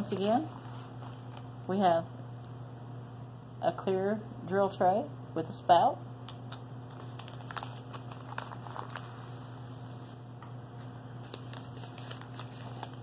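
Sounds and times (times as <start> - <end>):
steady low hum: 0.0 - 13.0
plastic bags crinkling: 6.9 - 9.7, 11.2 - 13.0.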